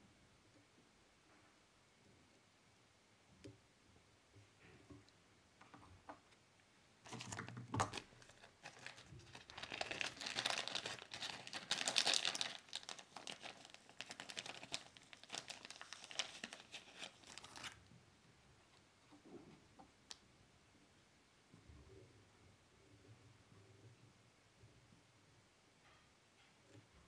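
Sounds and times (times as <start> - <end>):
plastic packet crinkling: 7.1 - 17.8.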